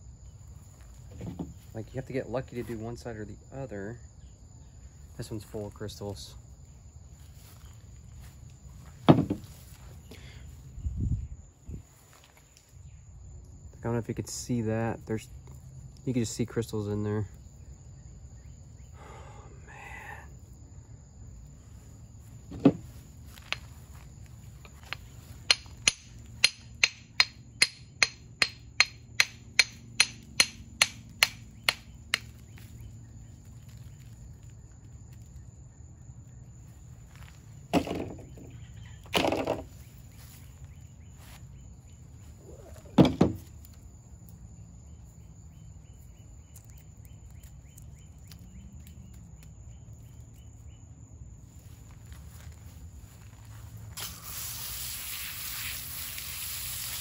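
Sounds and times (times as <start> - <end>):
loud knocks: 9.0 - 9.5, 22.5 - 22.9, 37.7 - 38.5, 43.0 - 43.4
hammer tapping stone: 24.7 - 32.4.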